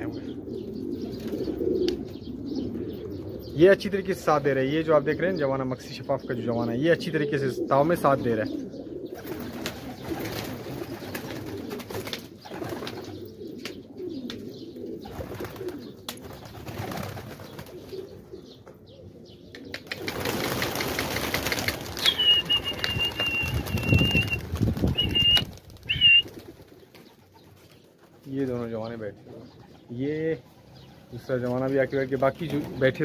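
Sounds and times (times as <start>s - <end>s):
pigeons cooing: 0.0s - 33.0s
wing flaps: 19.8s - 28.2s
high whistle: 22.0s - 24.4s.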